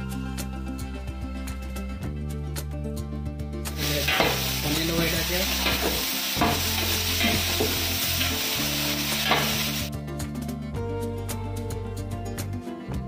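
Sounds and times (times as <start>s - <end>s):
onions sizzling in hot oil: 3.7s - 9.9s.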